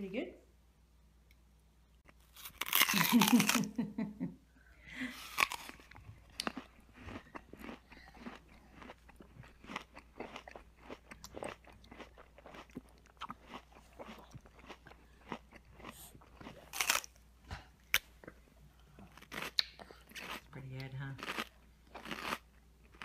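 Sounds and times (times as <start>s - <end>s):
toddler chewing food: 5.1s - 23.0s.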